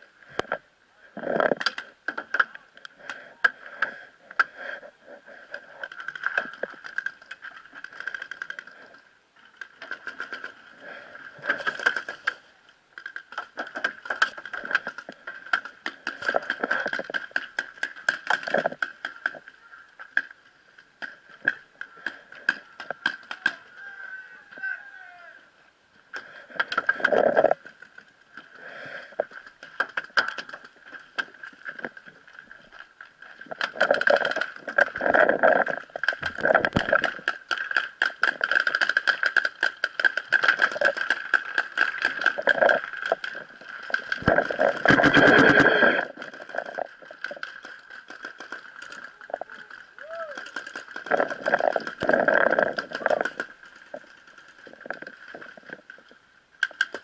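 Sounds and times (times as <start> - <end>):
voices calling out: 21.4 - 25.7, 48.9 - 50.6.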